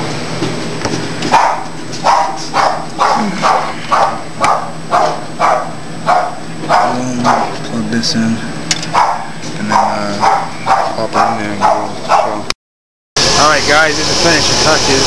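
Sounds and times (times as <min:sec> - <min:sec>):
dog barking: 0:01.3 - 0:07.6, 0:08.9 - 0:12.5.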